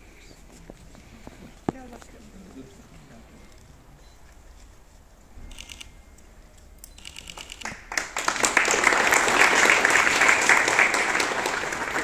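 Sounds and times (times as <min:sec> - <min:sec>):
crowd applauding: 0:07.3 - 0:12.0.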